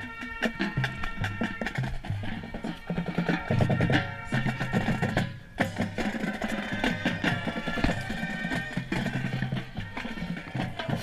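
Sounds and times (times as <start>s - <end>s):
marching band playing: 0.0s - 11.0s.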